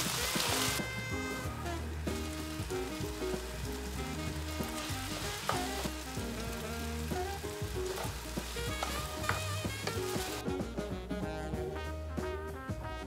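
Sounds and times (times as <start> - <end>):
food sizzling in frying pan: 0.0 - 10.5
background music: 0.0 - 13.0
wooden spoon stirring: 2.0 - 10.4.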